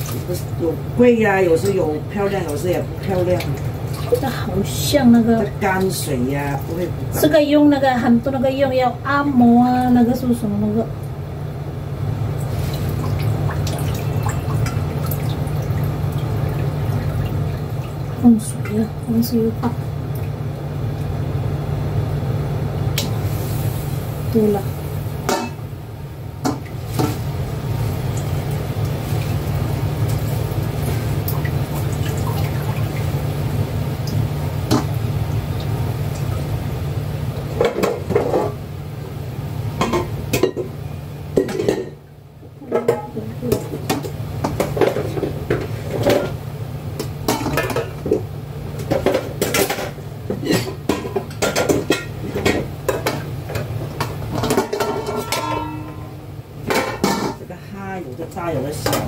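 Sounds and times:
steady low hum: 0.0s - 59.0s
pots and utensils clinking: 25.2s - 25.7s, 26.4s - 27.3s, 37.5s - 38.6s, 39.8s - 46.4s, 47.0s - 57.5s, 58.2s - 59.0s.

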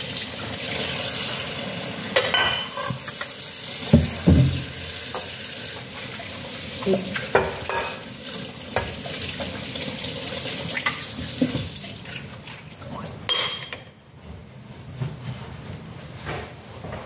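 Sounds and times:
running tap water: 0.0s - 13.2s
ceramic dish clink: 13.3s - 14.0s.

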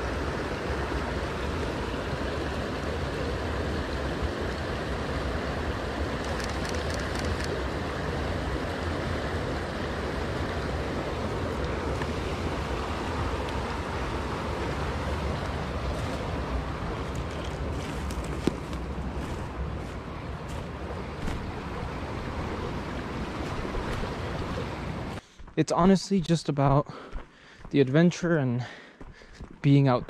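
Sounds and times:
forest creek rushing: 0.0s - 25.2s
faint crackles: 6.2s - 7.6s, 17.0s - 21.4s.

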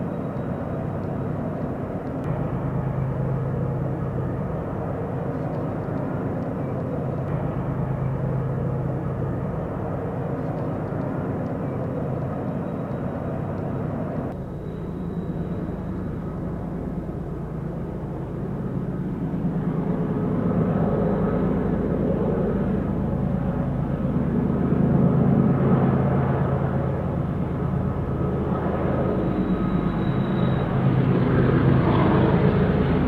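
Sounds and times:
diesel locomotives rumbling: 0.0s - 33.0s.

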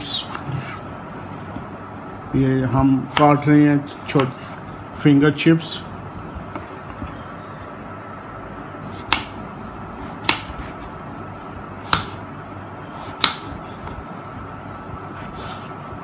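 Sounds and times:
steady background hum: 0.0s - 16.0s
knife slicing potato: 10.0s - 10.8s, 13.0s - 13.6s.

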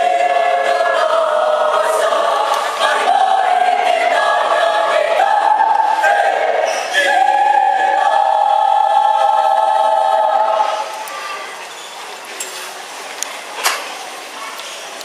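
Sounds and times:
mixed choir singing a chord: 0.0s - 11.1s
hall noise: 0.0s - 12.1s.

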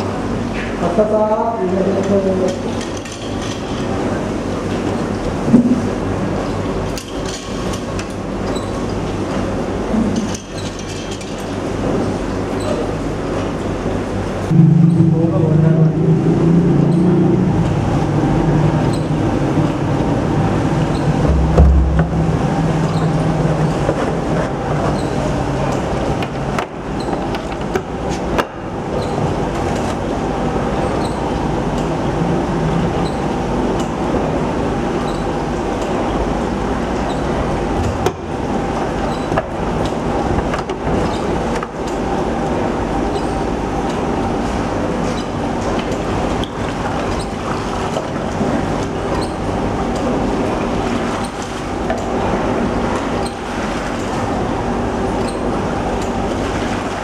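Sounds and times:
machinery rumble and hum: 0.0s - 57.0s.

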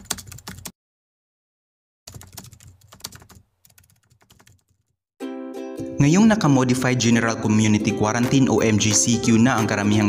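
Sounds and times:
typing on computer keyboard: 0.0s - 0.8s, 2.1s - 5.0s.

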